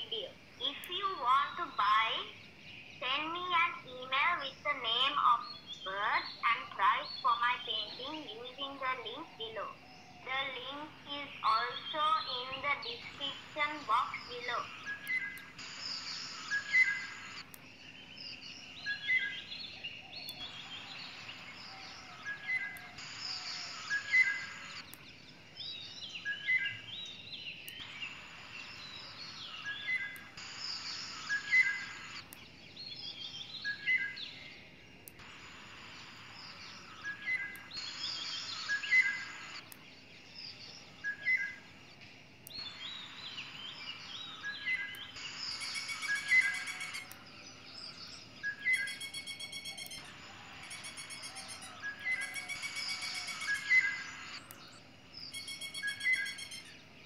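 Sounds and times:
birds chirping: 0.0 - 57.0
hiss: 22.8 - 24.8.

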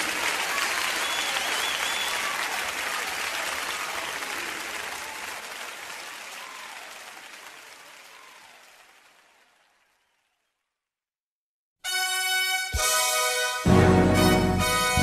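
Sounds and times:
congregation applauding: 0.0 - 10.6.

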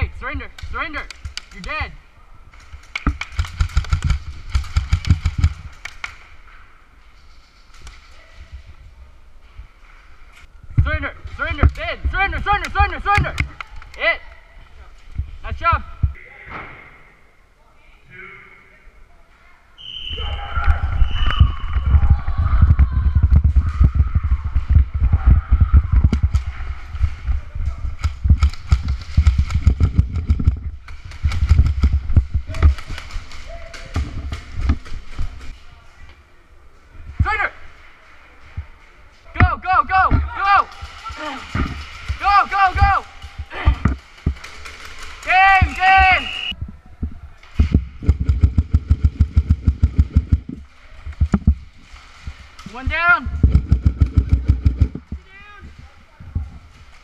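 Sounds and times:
gear clicks and snaps: 2.5 - 6.4, 28.0 - 35.6.

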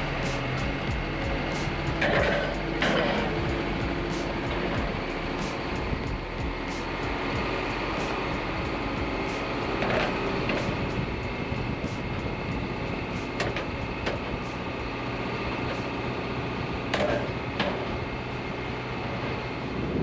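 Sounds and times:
truck engine and road noise: 0.0 - 20.0
sharp knocks and rattles: 0.6 - 6.7.

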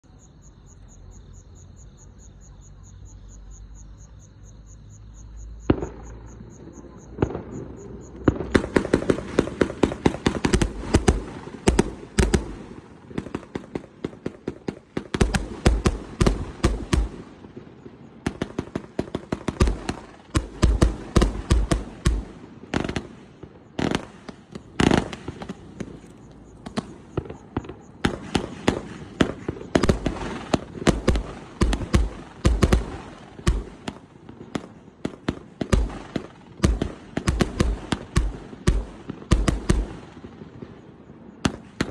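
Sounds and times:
fireworks cake bangs: 26.6 - 40.6.

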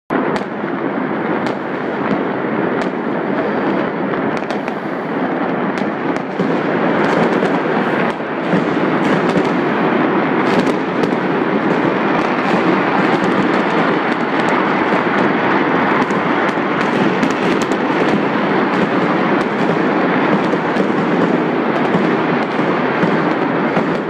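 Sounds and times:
fireworks crackling: 0.1 - 24.0
sharp firework cracks: 0.1 - 24.0.

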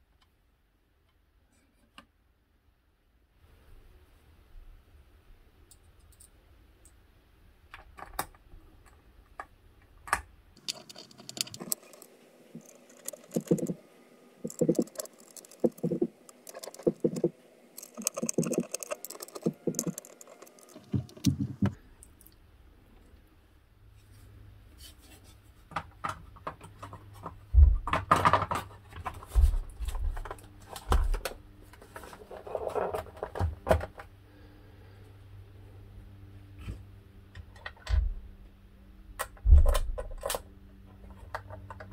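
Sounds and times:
hands handling circuit board and case: 10.1 - 13.8, 14.4 - 21.8
evenly spaced knocks: 12.6 - 13.8, 14.4 - 21.8.

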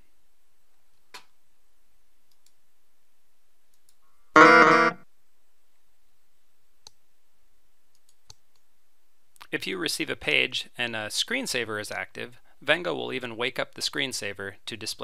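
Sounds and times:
faint mouse click: 2.3 - 2.6, 3.7 - 4.0, 7.9 - 8.7
short musical alert tone: 4.4 - 5.0.

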